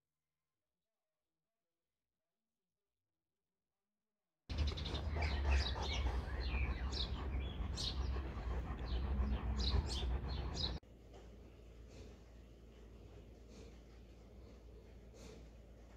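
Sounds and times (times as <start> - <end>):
small birds chirping: 4.5 - 10.8.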